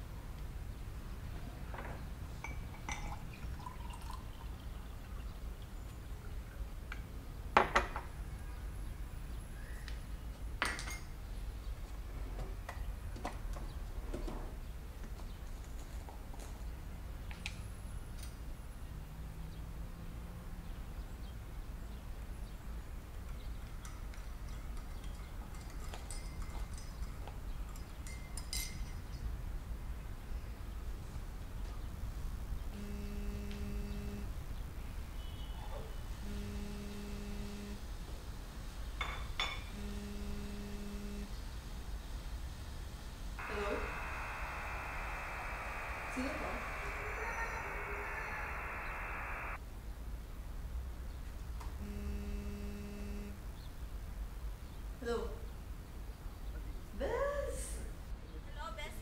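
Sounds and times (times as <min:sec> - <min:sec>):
spoon clinking against mug: 0:02.4 - 0:03.2, 0:23.8 - 0:29.0
mug and glassware clinking: 0:02.4 - 0:04.2
low steady hum: 0:32.7 - 0:34.4, 0:39.7 - 0:41.4, 0:43.2 - 0:49.6.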